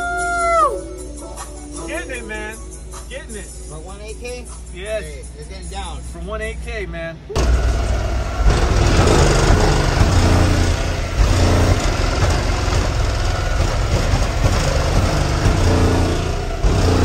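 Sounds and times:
deep bass from car audio: 0:07.4 - 0:17.0
vehicle engine idling: 0:07.4 - 0:17.0.

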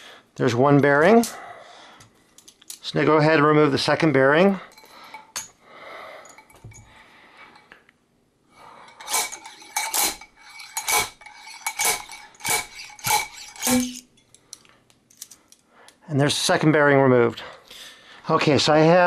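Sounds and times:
handling of metal puller: 0:09.0 - 0:14.0.

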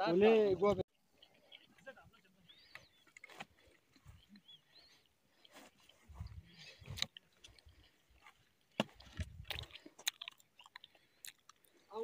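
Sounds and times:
footsteps crunching on stony grass: 0:03.2 - 0:10.2.

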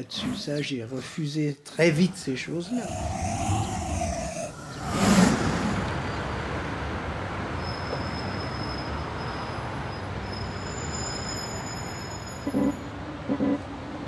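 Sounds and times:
passing cars: 0:02.8 - 0:14.0.

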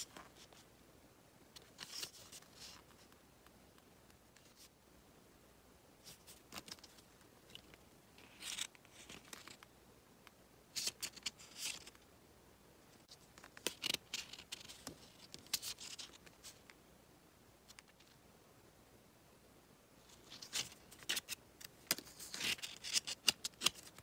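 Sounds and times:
paper pages rustling: 0:01.6 - 0:03.2, 0:06.0 - 0:09.7, 0:10.7 - 0:12.0, 0:13.0 - 0:16.8, 0:20.1 - 0:24.0.

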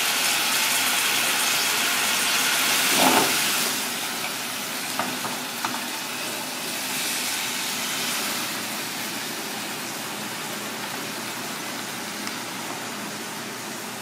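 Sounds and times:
rushing kitchen background noise: 0:00.0 - 0:14.0.

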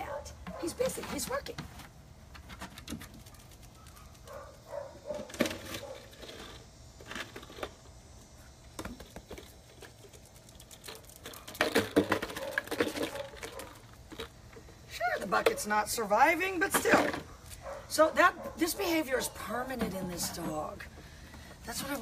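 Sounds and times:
dog crunching a bucket: 0:00.0 - 0:07.8, 0:09.0 - 0:15.8.

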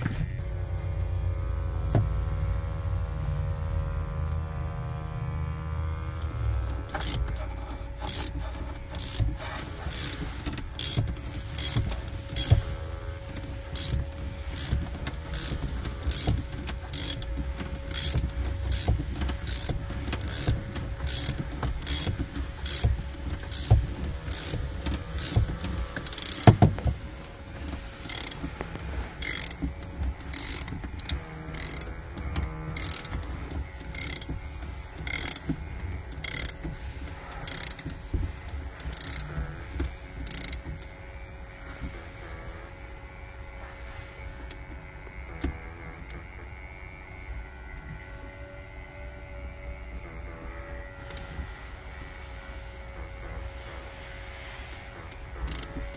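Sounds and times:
ratcheting winder clicks: 0:06.2 - 0:12.6, 0:13.2 - 0:40.9, 0:54.7 - 0:55.9.

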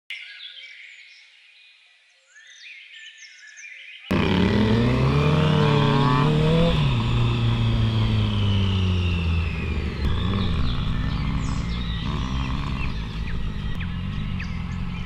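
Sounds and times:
faint birdsong: 0:00.1 - 0:15.0
motorcycle engine accelerating: 0:04.1 - 0:15.0.

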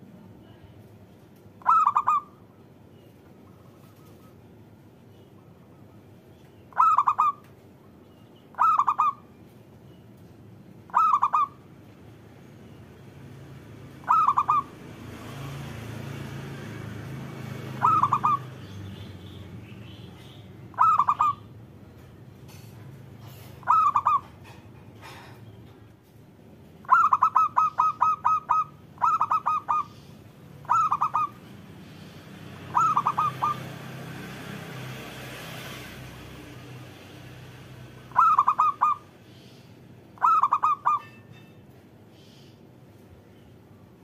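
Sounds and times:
dove cooing: 0:01.6 - 0:02.3, 0:06.7 - 0:07.4, 0:08.5 - 0:09.2, 0:10.9 - 0:11.6, 0:14.0 - 0:14.7, 0:17.6 - 0:18.5, 0:20.7 - 0:21.5, 0:23.2 - 0:25.2, 0:26.8 - 0:31.5, 0:32.7 - 0:33.7, 0:38.1 - 0:39.0, 0:40.2 - 0:41.1.

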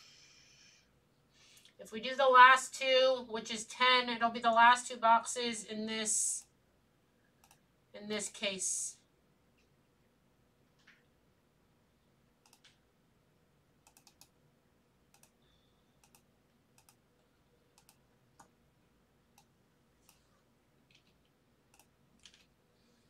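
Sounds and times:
keyboard and mouse clicks: 0:07.4 - 0:07.6, 0:12.4 - 0:12.8, 0:13.8 - 0:14.4, 0:15.1 - 0:15.4, 0:16.0 - 0:17.0, 0:17.7 - 0:18.5, 0:20.9 - 0:22.5.

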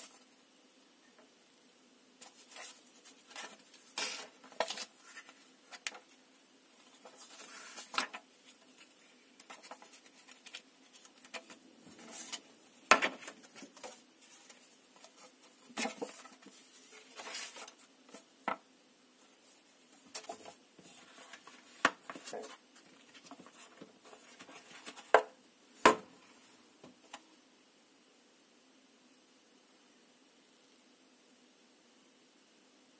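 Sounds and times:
paper pages rustling: 0:02.2 - 0:06.2, 0:06.8 - 0:18.3, 0:19.9 - 0:25.2.

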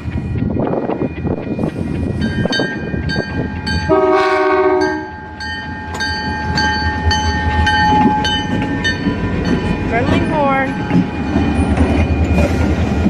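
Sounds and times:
train rumble: 0:00.0 - 0:13.0
locomotive air horn blast: 0:03.9 - 0:05.1.

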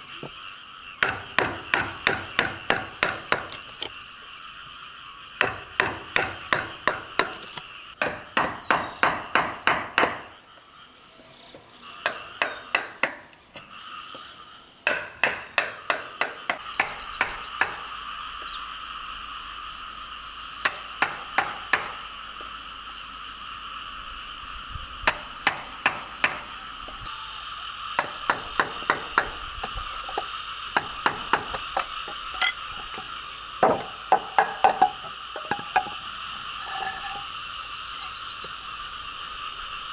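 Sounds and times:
wooden mallet striking chisel: 0:33.6 - 0:36.0.

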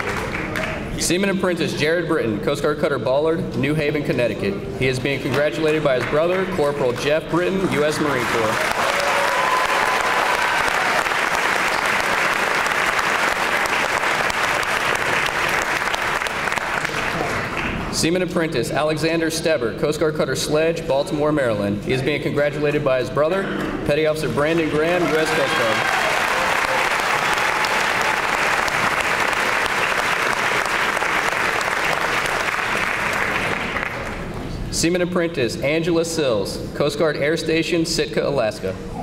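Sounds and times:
audience applause: 0:00.0 - 0:00.9, 0:06.0 - 0:17.8, 0:24.4 - 0:34.2.

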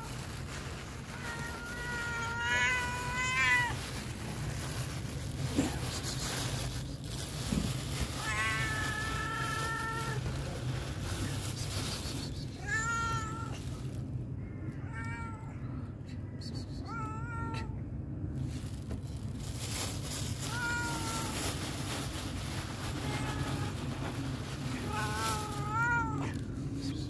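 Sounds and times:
low background hum: 0:00.0 - 0:27.0
cat meowing: 0:01.0 - 0:04.1, 0:08.0 - 0:10.4, 0:12.6 - 0:13.8, 0:14.6 - 0:15.6, 0:16.8 - 0:17.8, 0:20.4 - 0:21.6, 0:22.9 - 0:26.5.

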